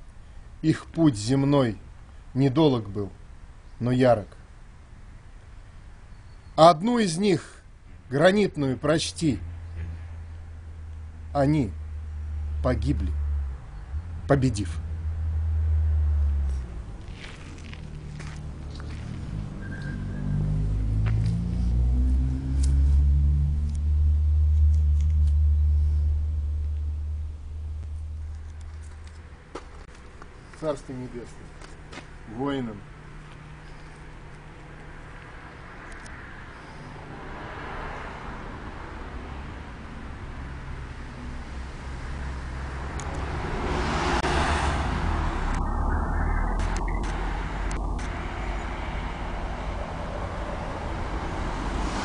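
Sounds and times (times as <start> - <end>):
low road rumble: 0.0 - 52.0
vehicle passing: 9.2 - 52.0
low steady hum: 21.6 - 30.6.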